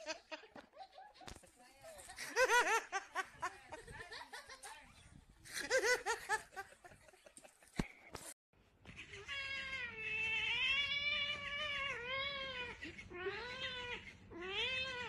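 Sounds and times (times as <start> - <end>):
cat yowling and meowing: 9.0 - 15.0.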